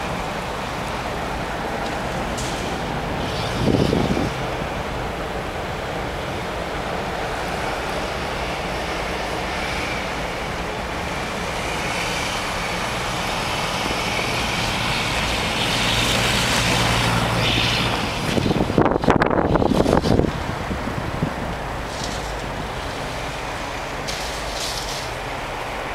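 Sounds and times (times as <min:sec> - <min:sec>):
van engine running hard: 0:00.0 - 0:25.4
tyres spinning on snow: 0:00.0 - 0:25.9.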